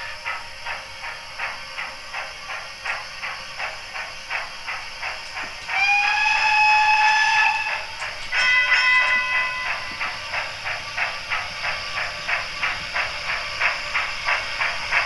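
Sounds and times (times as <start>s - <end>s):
steam whistle: 5.7s - 10.0s.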